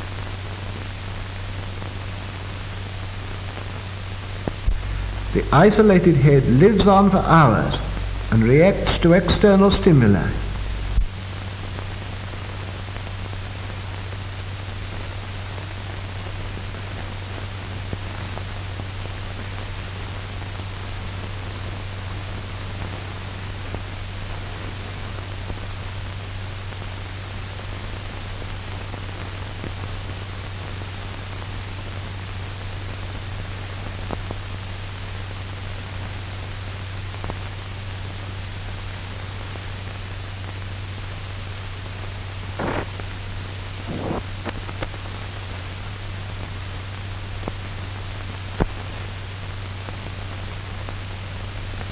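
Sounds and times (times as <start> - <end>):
film soundtrack hiss: 0.0 - 51.9
low hum: 3.6 - 13.6.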